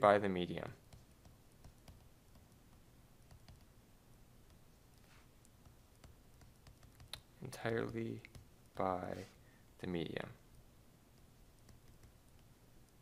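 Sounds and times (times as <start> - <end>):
stylus tapping on tablet: 0.8 - 3.7, 5.5 - 8.9, 11.1 - 12.5.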